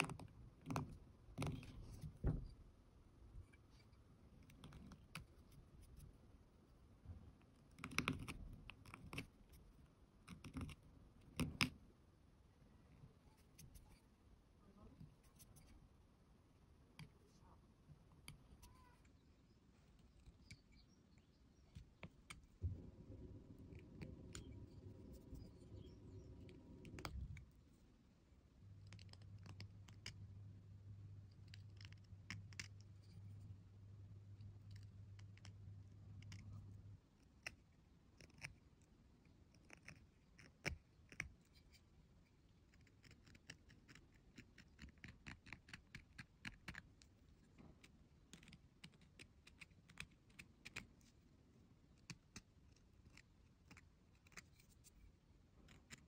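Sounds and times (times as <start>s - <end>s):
low hum: 22.4s - 27.9s.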